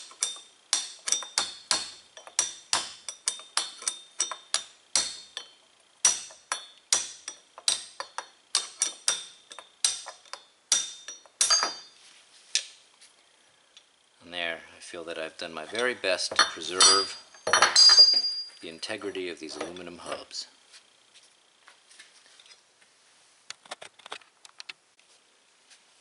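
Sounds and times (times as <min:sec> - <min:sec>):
hammer tapping steel punch: 0:00.0 - 0:11.9
metal ringing clatter: 0:02.2 - 0:12.0, 0:15.8 - 0:18.6.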